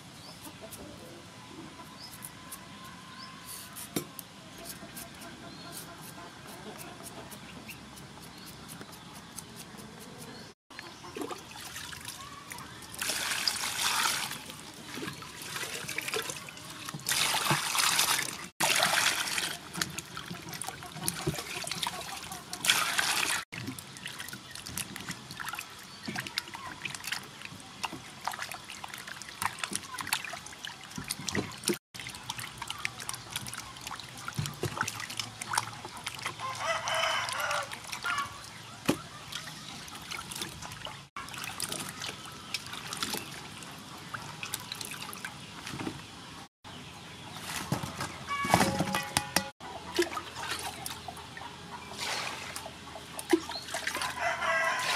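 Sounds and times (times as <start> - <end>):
water splashing in a bowl: 11.2 - 36.5, 38.9 - 45.8, 48.5 - 51.1, 53.2 - 54.9.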